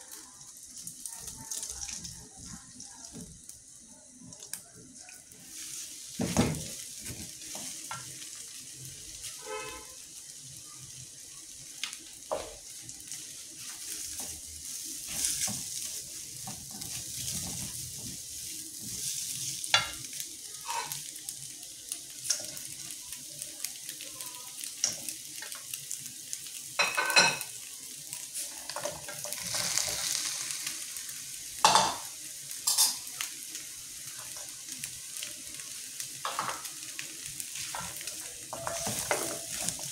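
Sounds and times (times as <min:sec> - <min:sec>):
food sizzling in hot oil: 0:00.0 - 0:39.9
spatula scraping and knocking pan: 0:37.6 - 0:39.9.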